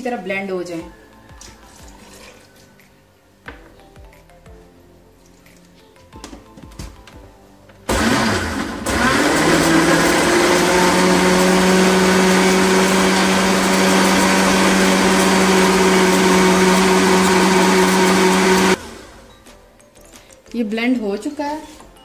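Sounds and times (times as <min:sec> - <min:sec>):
electric blender running: 0:07.9 - 0:19.3.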